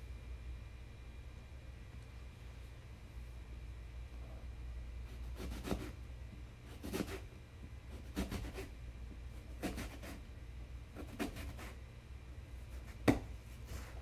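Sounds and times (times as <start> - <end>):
knife slicing apple on board: 5.1 - 6.0, 6.7 - 7.3, 8.0 - 8.7, 9.4 - 10.2, 11.0 - 11.8, 12.7 - 13.4.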